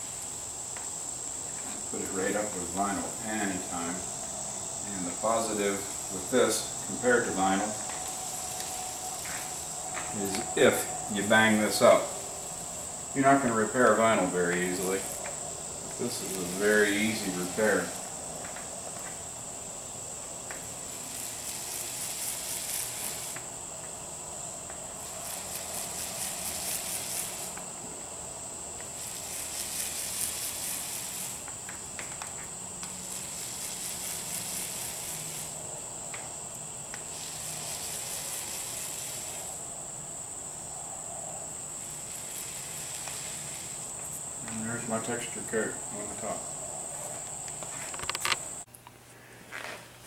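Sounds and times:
roller crackling hiss: 0.0 - 50.0
high-pitched whine: 1.4 - 19.2.

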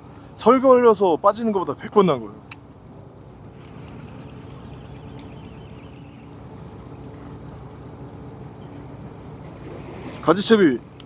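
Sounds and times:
boat engine idling: 0.0 - 11.0
wind: 0.0 - 11.0
faint ticks: 2.5 - 5.7
water noise: 2.6 - 11.0.

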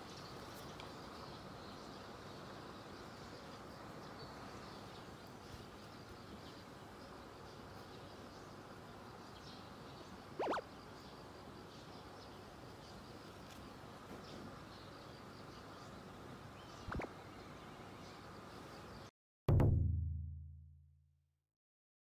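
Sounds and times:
insect hum: 0.0 - 19.1
short rising chirp: 10.4 - 10.7.

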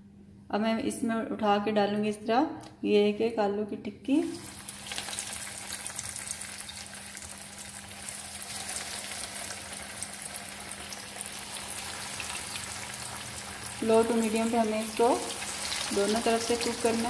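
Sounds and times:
patties sizzling in hot oil: 4.2 - 17.0.

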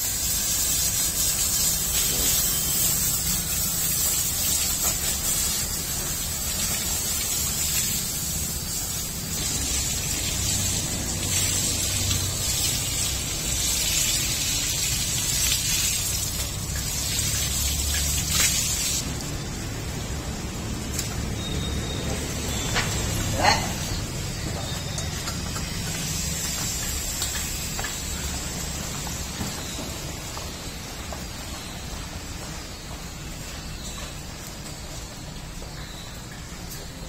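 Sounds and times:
water spraying from a hose: 0.0 - 34.1
water splashing on wet floor: 0.1 - 19.4, 24.7 - 30.0.

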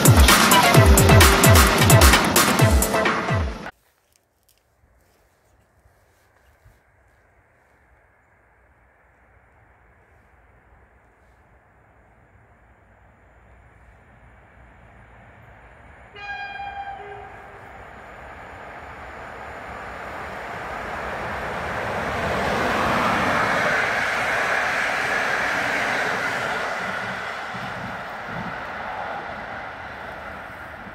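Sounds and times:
train wheels rumbling on rails: 0.0 - 3.7, 12.0 - 30.9
locomotive horn blast: 16.1 - 18.2.

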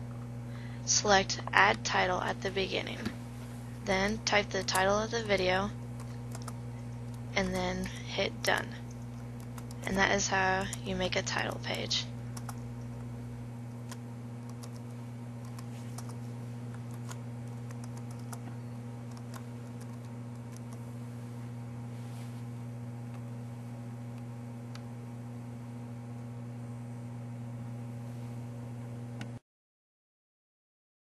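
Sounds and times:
low electrical hum: 0.0 - 29.4
keyboard typing: 3.9 - 11.0, 12.4 - 12.6, 13.9 - 18.5, 19.1 - 20.8.

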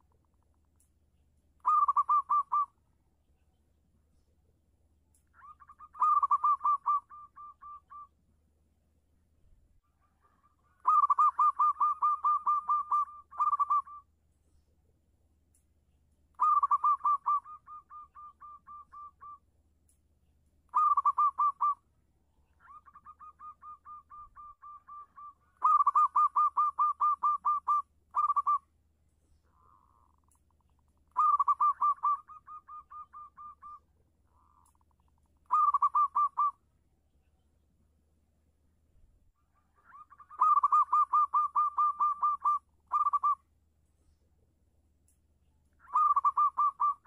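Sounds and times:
dove cooing: 1.6 - 2.8, 5.4 - 8.1, 10.0 - 14.0, 16.4 - 19.4, 20.7 - 21.8, 22.6 - 28.6, 31.1 - 34.8, 35.4 - 36.6, 39.6 - 43.4, 45.8 - 47.0.

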